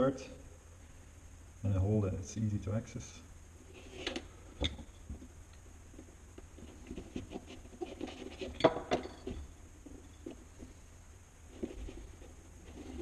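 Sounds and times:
rustles and scratches of handling: 3.6 - 13.0.

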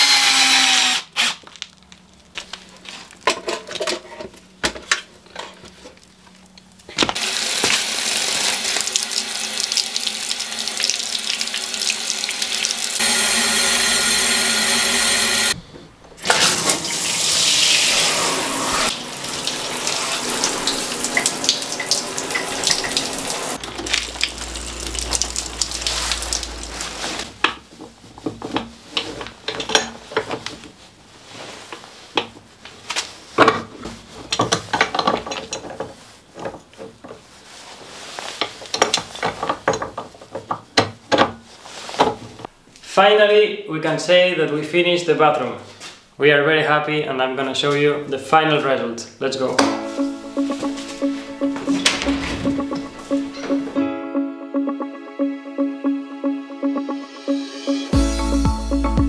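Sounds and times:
water spraying from shower head: 16.3 - 27.4.

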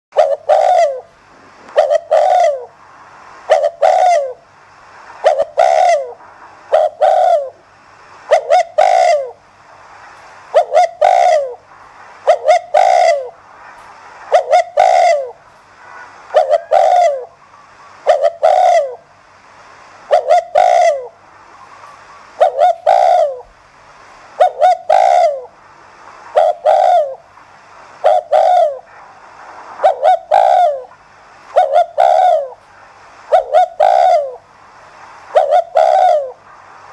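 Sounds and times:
dove cooing: 0.1 - 2.8, 3.5 - 4.4, 5.2 - 7.6, 8.3 - 9.4, 10.5 - 13.4, 14.3 - 19.1, 20.1 - 23.5, 24.4 - 25.6, 26.3 - 27.2, 28.0 - 29.0, 29.8 - 32.6, 33.3 - 34.5, 35.3 - 36.4.

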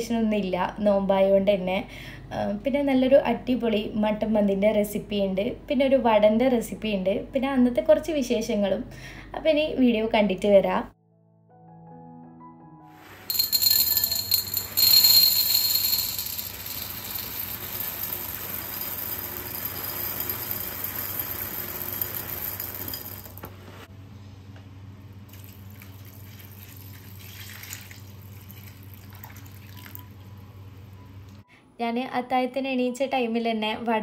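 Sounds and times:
water running from a tap: 25.3 - 30.0.

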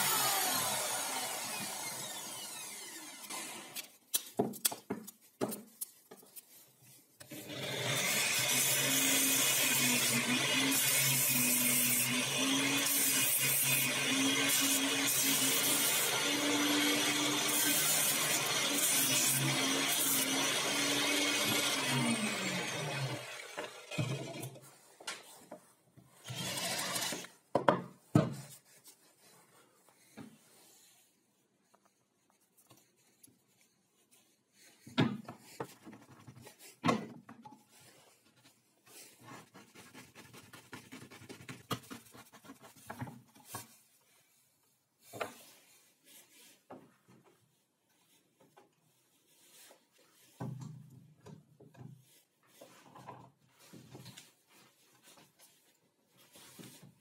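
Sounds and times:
angle grinder winding down: 0.0 - 3.8
wood being sanded by hand: 7.6 - 23.0.

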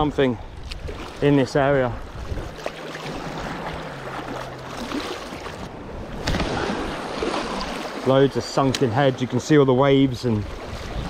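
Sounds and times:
sea waves splashing against rocks: 0.8 - 9.3.

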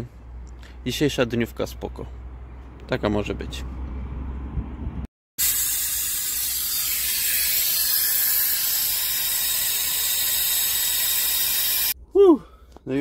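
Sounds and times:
compressed air hissing: 5.4 - 12.0.

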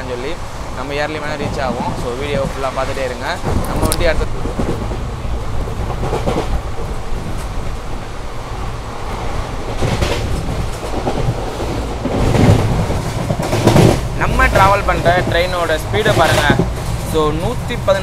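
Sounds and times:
train wheels and wind rumble: 0.0 - 18.0
wheels clattering over rail joints: 9.1 - 18.0.

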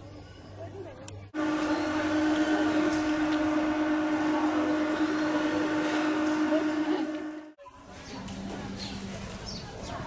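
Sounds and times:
steady machine hum: 1.4 - 7.6.

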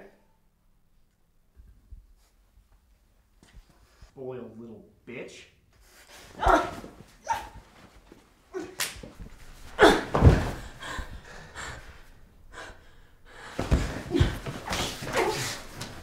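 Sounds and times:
thuds: 10.0 - 10.7, 13.5 - 16.0.

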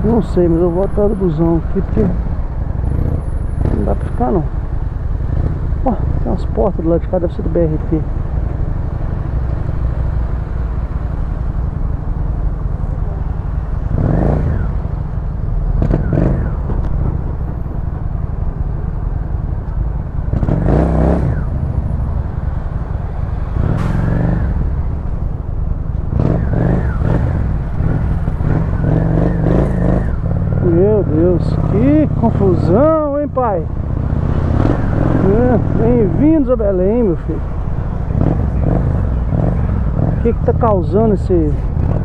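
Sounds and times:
motorcycle engine revving: 13.4 - 17.3, 20.2 - 25.0, 26.0 - 42.0.

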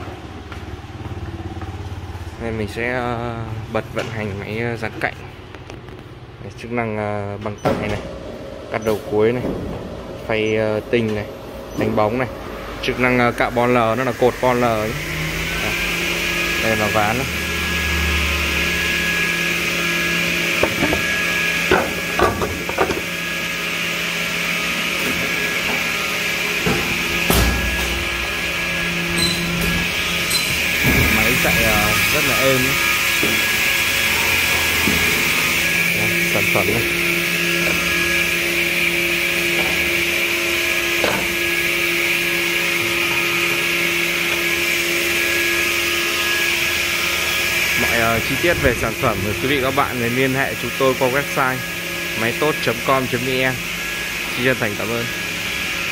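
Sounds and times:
edge banding machine humming: 0.0 - 55.9.

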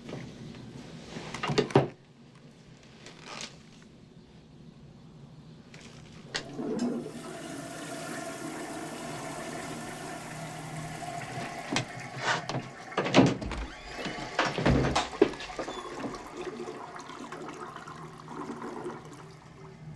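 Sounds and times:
toilet flushing: 6.3 - 19.9
sharp knocks and thumps: 11.4 - 16.2.

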